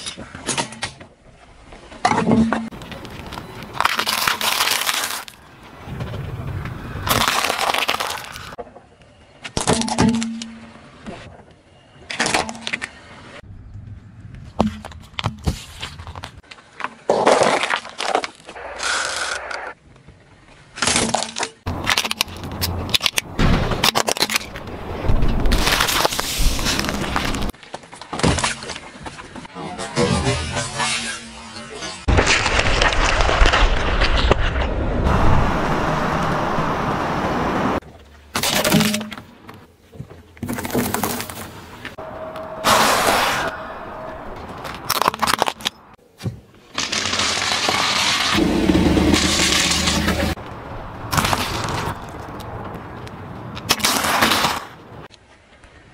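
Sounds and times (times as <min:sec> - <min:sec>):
tyre crushing small objects: 0:02.7 - 0:05.4, 0:07.0 - 0:08.6, 0:14.6 - 0:18.6, 0:20.8 - 0:28.8, 0:40.2 - 0:42.0, 0:44.5 - 0:54.8
plastic cracking under car tyre: 0:02.8 - 0:05.4, 0:07.0 - 0:08.6
plastic toy car cracking: 0:07.0 - 0:08.6.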